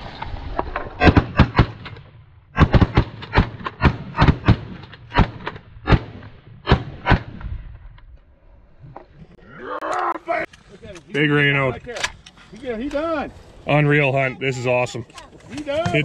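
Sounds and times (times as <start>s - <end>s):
shotgun blasts: 1.0s - 7.6s.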